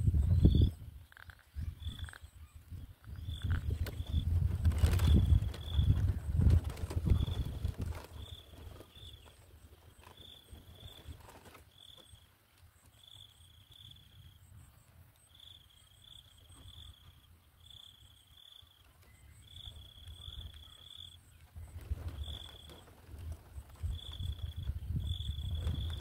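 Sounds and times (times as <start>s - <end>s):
low wind rumble: 0.0s - 9.0s, 21.6s - 26.0s
insect chirping: 0.0s - 21.4s, 22.0s - 26.0s.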